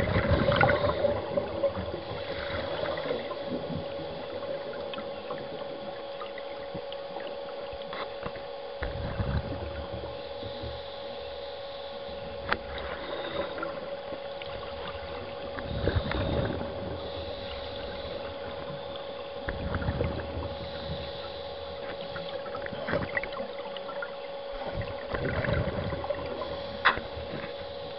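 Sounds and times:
steady hum: 0.0s - 27.9s
underwater exhaled bubbles: 0.0s - 27.9s.

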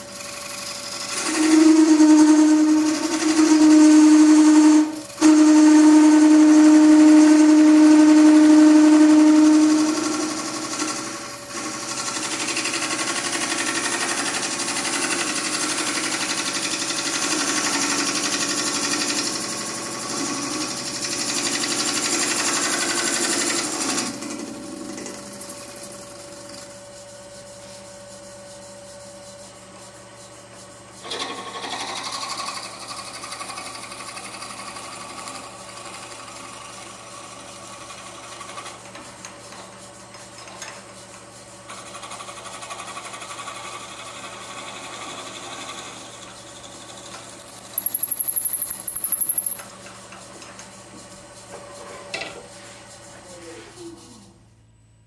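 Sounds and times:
gouge scraping spinning wood: 0.0s - 7.4s
lathe humming: 0.2s - 13.0s.

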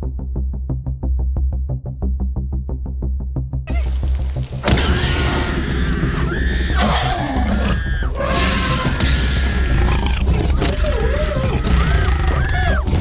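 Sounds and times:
children screaming: 5.3s - 13.0s.

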